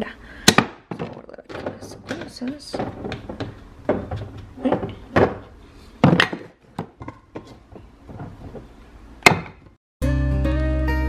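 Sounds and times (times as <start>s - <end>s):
kitchen items knocking on countertop: 0.5s - 8.6s.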